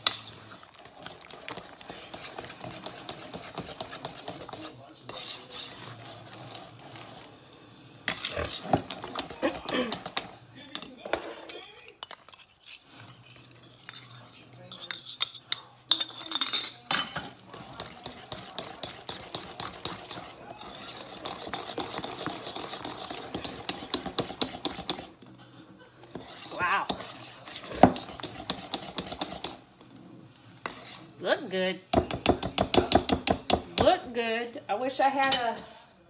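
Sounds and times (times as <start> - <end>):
wire whisk beating in bowl: 0.8 - 7.2, 15.9 - 25.2, 26.1 - 29.6, 32.0 - 34.0.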